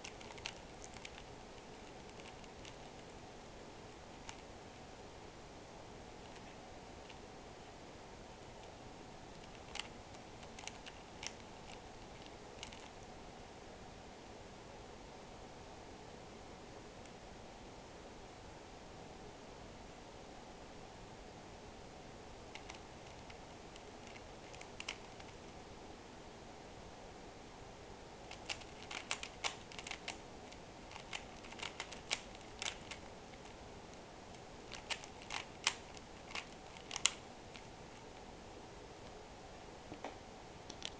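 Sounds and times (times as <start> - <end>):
puzzle cube plastic clicking: 0.0 - 3.1, 4.2 - 4.5, 6.2 - 7.2, 8.6 - 13.0, 22.5 - 25.4, 28.3 - 33.6, 34.7 - 38.2
faint background hiss: 0.0 - 40.9.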